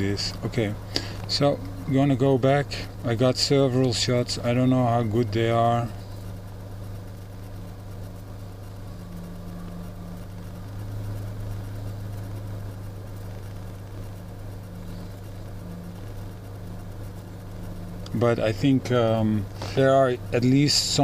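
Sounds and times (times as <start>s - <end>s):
low machine hum: 0.0s - 21.0s.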